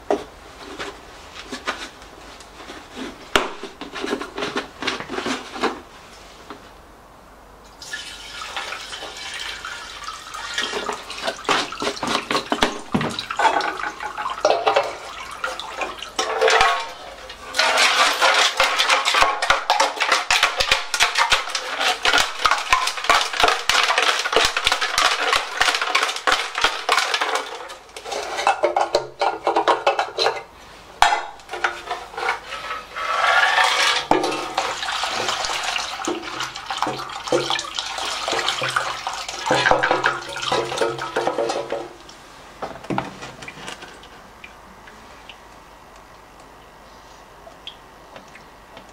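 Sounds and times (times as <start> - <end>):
liquid sloshing in metal tank: 7.8 - 30.4, 31.0 - 42.0
metal tank rattling: 10.6 - 30.4
liquid pouring from plastic can: 33.8 - 41.1.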